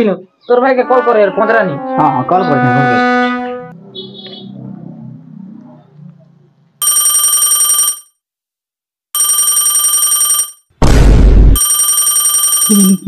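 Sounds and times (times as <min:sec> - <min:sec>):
phone ringing bell ringtone: 0:06.8 - 0:08.2, 0:09.2 - 0:10.7, 0:11.6 - 0:13.0.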